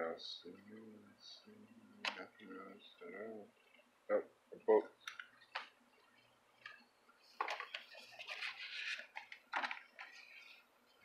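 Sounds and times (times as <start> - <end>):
paper and cardboard rustling: 7.3 - 10.6.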